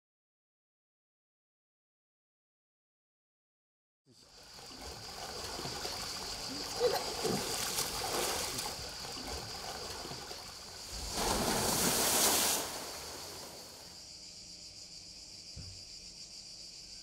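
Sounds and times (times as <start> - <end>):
high insect drone: 4.1 - 17.0
water splashing in pool: 4.3 - 13.9
water rushing down slide: 6.0 - 13.9.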